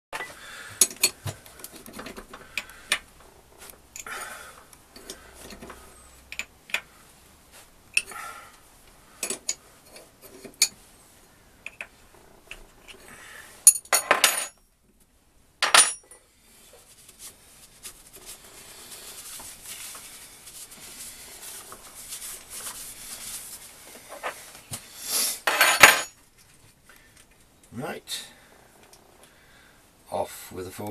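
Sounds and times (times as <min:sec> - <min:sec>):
faint steady rubbing: 0:16.2 - 0:25.4.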